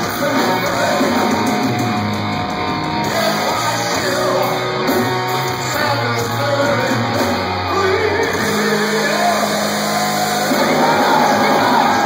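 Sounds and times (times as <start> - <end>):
rock band playing loudly: 0.0 - 12.0
person singing: 3.0 - 12.0.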